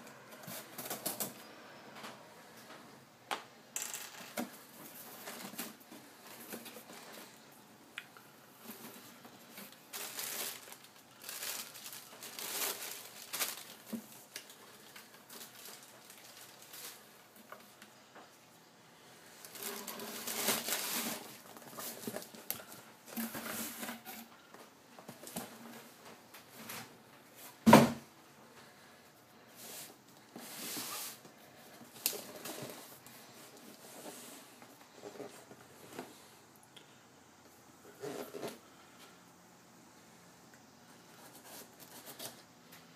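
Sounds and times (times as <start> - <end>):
plastic packing rustling: 8.6 - 17.9, 19.4 - 24.4.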